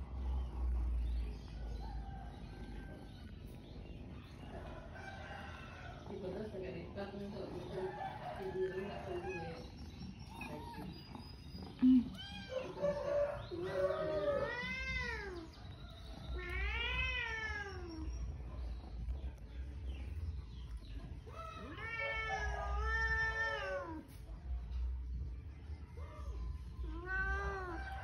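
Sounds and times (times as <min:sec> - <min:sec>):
cat meowing: 0:09.1 - 0:12.8, 0:13.6 - 0:15.6, 0:16.3 - 0:18.2, 0:21.3 - 0:24.1, 0:26.8 - 0:28.0.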